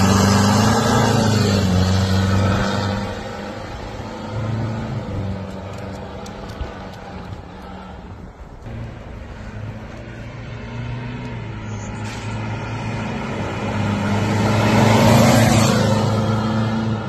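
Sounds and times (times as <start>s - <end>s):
diesel truck driving past: 8.6s - 17.0s.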